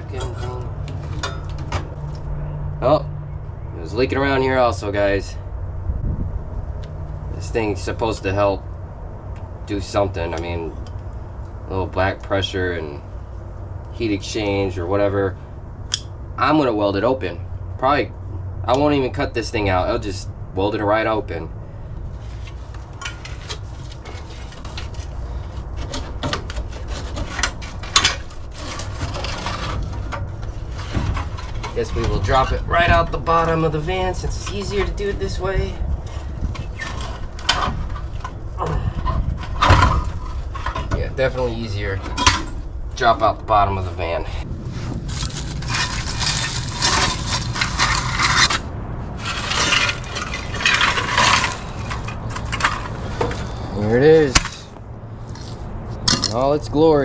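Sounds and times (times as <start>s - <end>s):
metal scraping and clinking: 0.0s - 2.5s, 22.2s - 43.2s, 43.9s - 56.5s
steady low hum: 0.0s - 57.0s.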